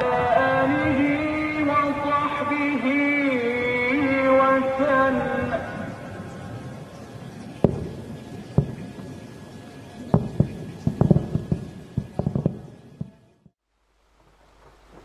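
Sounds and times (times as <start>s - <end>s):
background rumble: 0.0s - 15.0s
distant explosions booming: 6.0s - 13.2s.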